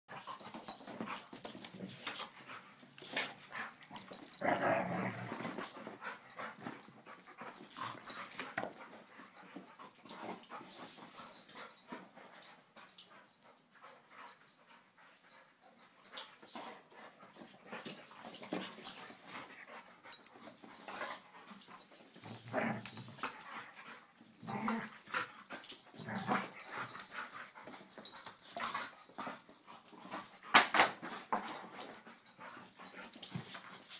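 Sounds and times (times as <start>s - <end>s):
dogs yipping and growling: 3.5s - 5.5s.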